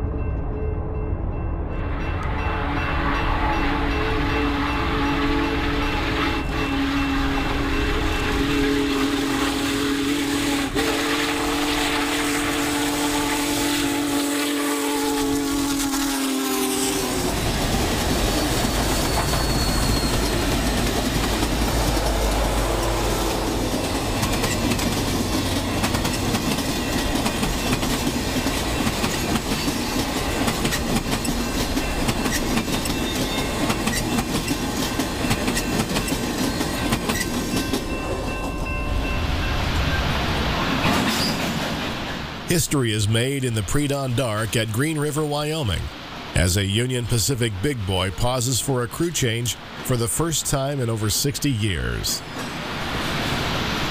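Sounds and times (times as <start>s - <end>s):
train rumble and clickety-clack: 0.0s - 14.5s, 15.1s - 42.5s
steam locomotive chime whistle: 2.1s - 17.3s, 18.4s - 20.7s, 31.2s - 34.6s.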